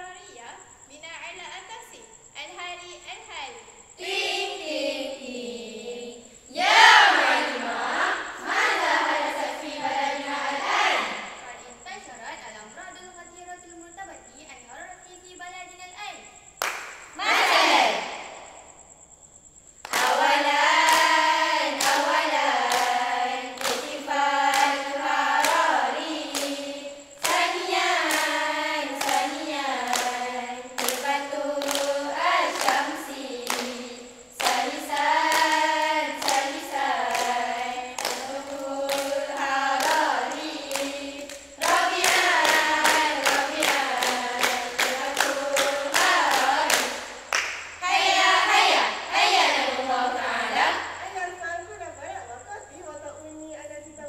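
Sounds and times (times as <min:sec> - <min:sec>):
girls' choir singing: 0:04.0 - 0:11.8, 0:16.6 - 0:18.6, 0:19.8 - 0:51.2
rhythmic hand claps: 0:06.6 - 0:11.3, 0:16.6 - 0:18.4, 0:19.8 - 0:50.8.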